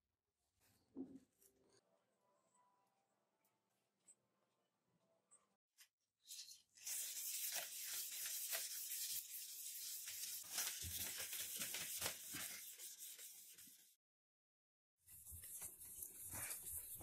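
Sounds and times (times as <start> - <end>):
sandpaper scraping steel blade: 6.4 - 13.9.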